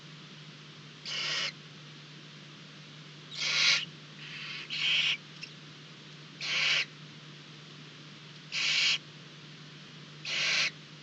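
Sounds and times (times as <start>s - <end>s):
steady low hum: 0.0s - 11.0s
owls hissing calls: 1.0s - 1.6s, 3.3s - 5.2s, 6.4s - 6.9s, 8.5s - 9.0s, 10.2s - 10.8s.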